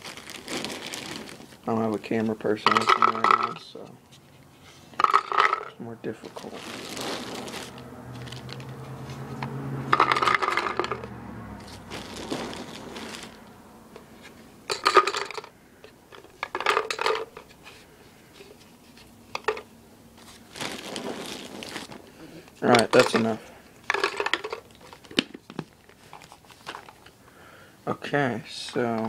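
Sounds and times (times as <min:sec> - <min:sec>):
paintballs clattering into plastic hopper: 0:02.6 - 0:03.7, 0:05.0 - 0:08.8, 0:09.9 - 0:11.1, 0:14.7 - 0:15.5, 0:16.1 - 0:17.5, 0:19.3 - 0:19.7, 0:22.6 - 0:27.1.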